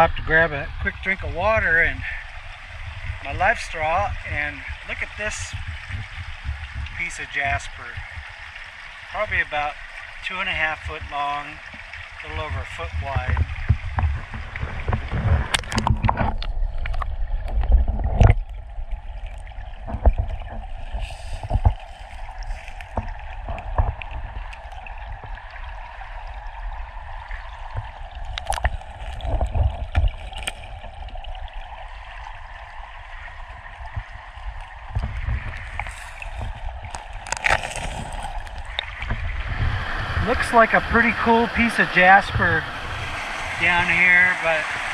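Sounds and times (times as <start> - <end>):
low uneven rumble: 0.0 - 44.9
river water rushing over rocks: 32.8 - 44.9.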